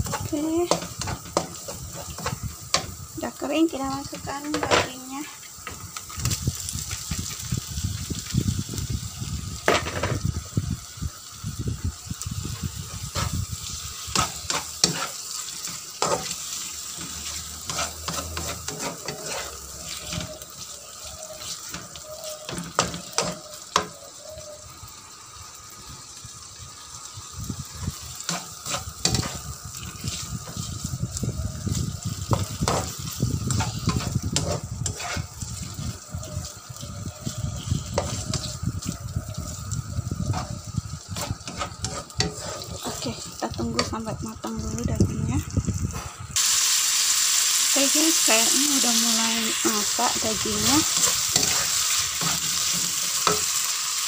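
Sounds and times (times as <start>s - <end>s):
spatula scraping a pan: 0.0s - 3.0s, 12.8s - 24.0s, 27.8s - 31.0s, 32.3s - 36.4s, 37.2s - 38.6s, 40.2s - 44.0s, 49.7s - 53.6s
beef sizzling in a pan: 0.0s - 54.0s.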